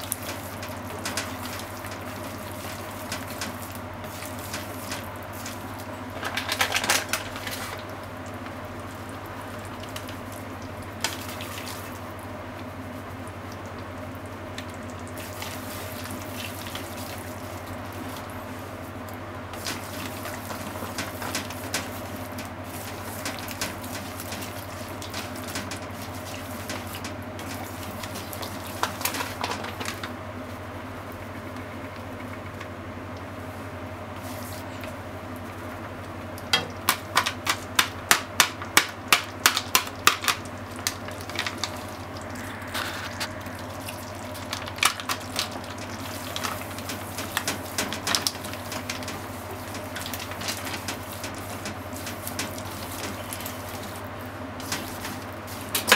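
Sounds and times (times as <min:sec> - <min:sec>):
steady low hum: 0:39.8 - 0:55.9.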